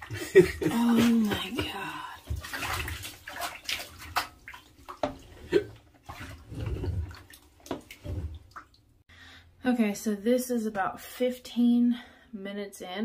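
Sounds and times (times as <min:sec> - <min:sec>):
water sloshing in a bathtub: 0:00.0 - 0:09.0.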